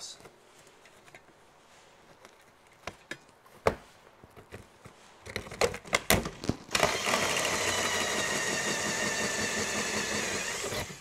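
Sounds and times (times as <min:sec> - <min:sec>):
power drill boring into roof: 0:06.7 - 0:11.0.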